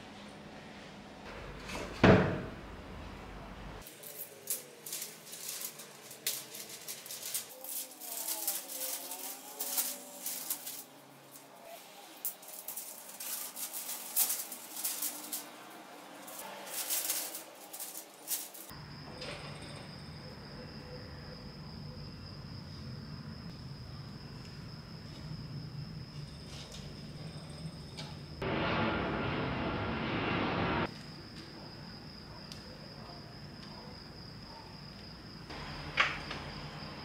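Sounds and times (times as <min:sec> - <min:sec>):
newspaper crackling and rustling: 0:03.8 - 0:18.7.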